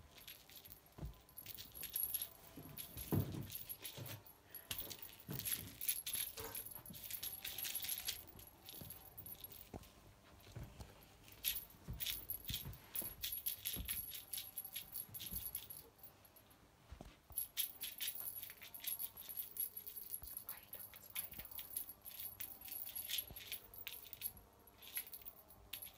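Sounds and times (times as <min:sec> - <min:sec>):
jingling cat toy rattling: 0:00.1 - 0:09.8, 0:11.3 - 0:15.9, 0:17.4 - 0:25.9.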